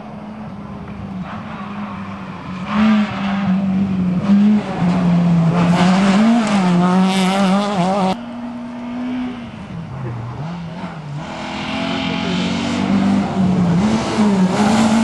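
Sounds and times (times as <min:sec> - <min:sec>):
rally car engine revving: 0:00.2 - 0:15.0.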